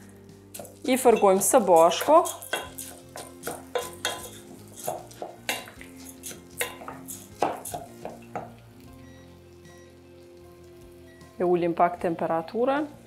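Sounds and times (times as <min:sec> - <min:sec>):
wooden spoon scraping metal pot: 0:00.6 - 0:08.2.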